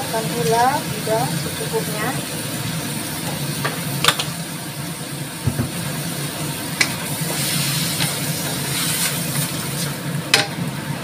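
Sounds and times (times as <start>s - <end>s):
vegetables sizzling in wok: 0.0s - 11.0s
sharp clicks and taps on wok: 3.6s - 4.3s, 6.8s - 7.0s, 10.3s - 10.6s.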